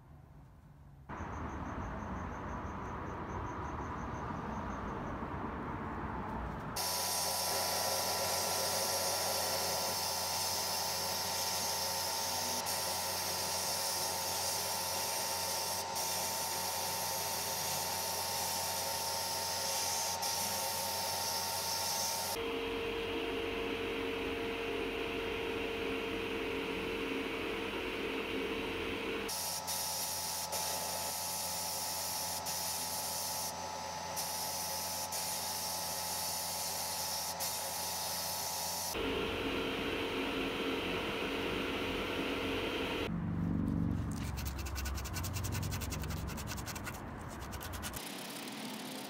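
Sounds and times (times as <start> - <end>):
sandblast gun hissing: 6.8 - 22.4, 29.3 - 39.0.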